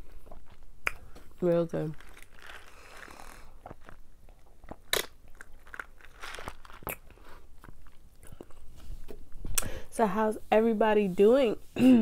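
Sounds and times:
wet mouth clicks and crunches: 0.1 - 1.3, 2.0 - 8.6.

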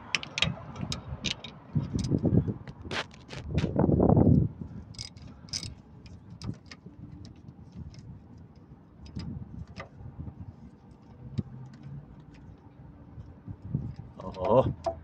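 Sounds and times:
hand ratchet clicking: 5.0 - 5.8.

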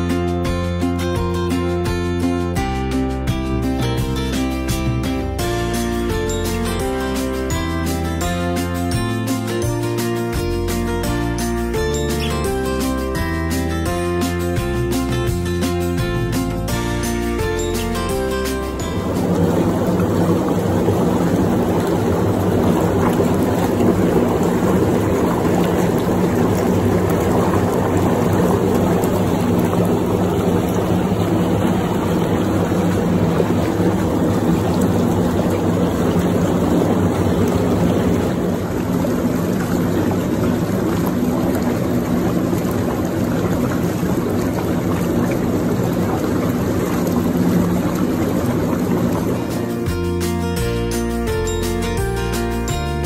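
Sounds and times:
water churning and bubbling: 0.0 - 53.0
jet pump motor humming: 17.4 - 50.1.

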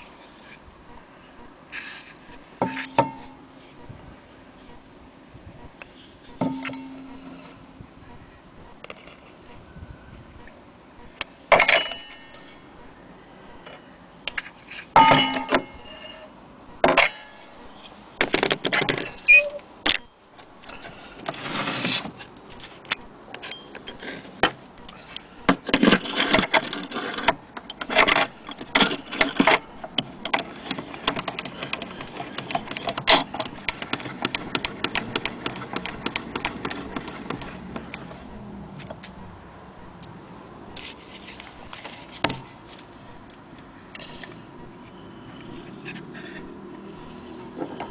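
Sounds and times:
metal parts clicking and rattling: 25.6 - 37.4.

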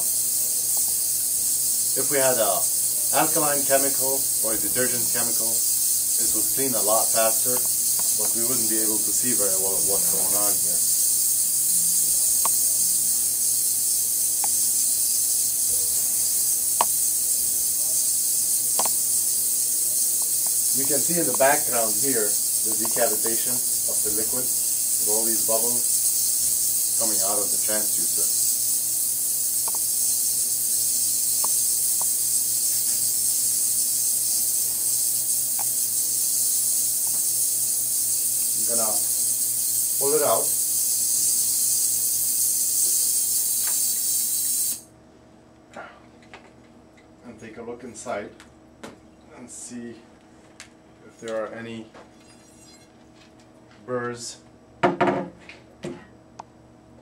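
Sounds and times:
ultrasonic cleaner hissing in water: 0.0 - 44.9.

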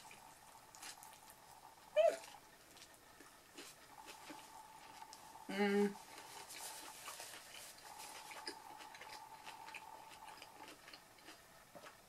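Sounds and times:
chewing food: 0.0 - 12.0.

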